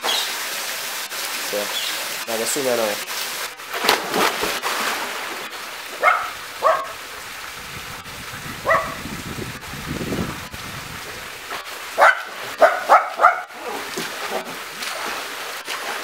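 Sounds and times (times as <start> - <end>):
water sloshing from swimming: 3.0 - 7.6, 11.0 - 16.0
person jumping into pool splash: 3.0 - 16.0
dog barking: 6.0 - 7.0, 8.6 - 9.0, 12.0 - 13.8.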